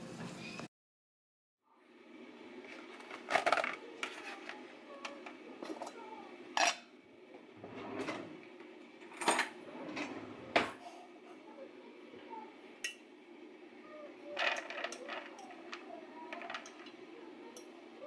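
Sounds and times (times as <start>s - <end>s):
pot and containers clattering: 2.8s - 6.0s, 14.4s - 17.8s.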